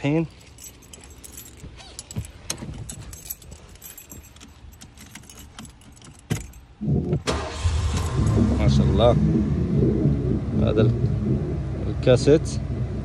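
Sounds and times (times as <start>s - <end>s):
car keys jangling: 0.0s - 8.4s
key clicking in ignition: 0.3s - 8.4s.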